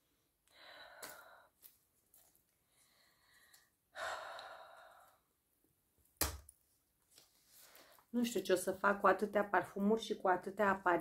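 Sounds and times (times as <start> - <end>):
woman breathing quietly: 0.2 - 5.5, 7.3 - 8.1.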